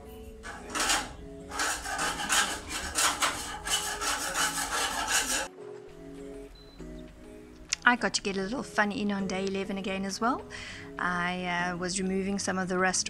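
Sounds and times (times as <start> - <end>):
scraping rust off steel: 0.3 - 5.5.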